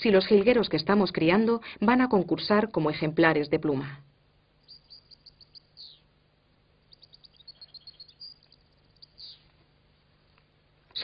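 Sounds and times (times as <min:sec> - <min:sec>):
goldfinches twittering: 0:04.6 - 0:06.1, 0:06.9 - 0:09.5.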